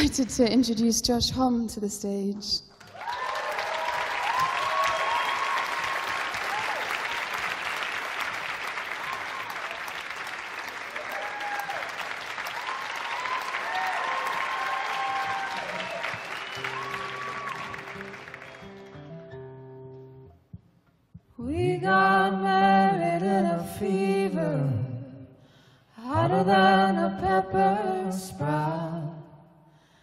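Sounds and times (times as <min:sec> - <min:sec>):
audience applauding and cheering: 0:02.7 - 0:19.5
whoops: 0:02.8 - 0:07.5, 0:08.9 - 0:09.9, 0:10.9 - 0:18.1.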